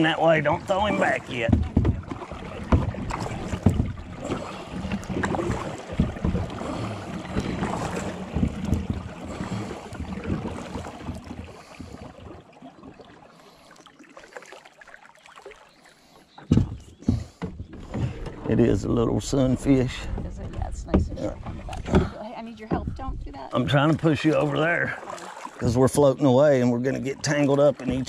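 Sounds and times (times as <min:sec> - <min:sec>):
hush of water: 0:00.0 - 0:28.0
paddle strokes in water: 0:00.0 - 0:28.0
knocks against boat hull: 0:00.9 - 0:06.6, 0:07.3 - 0:12.2, 0:16.4 - 0:23.3, 0:27.8 - 0:28.0.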